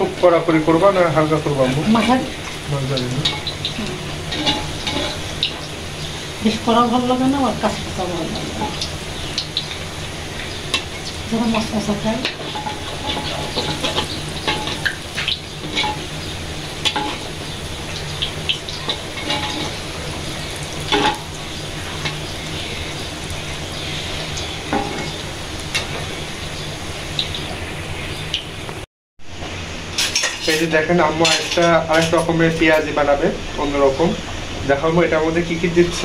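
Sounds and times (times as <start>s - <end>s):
fritters sizzling in hot oil: 0.0s - 36.0s
metal spatula scraping a pan: 3.2s - 5.7s, 12.2s - 17.6s, 18.8s - 22.9s, 30.0s - 32.8s.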